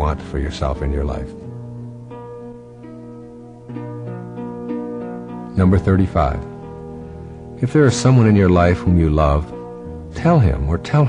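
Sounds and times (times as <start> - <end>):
soft plucked string music: 0.0 - 11.0.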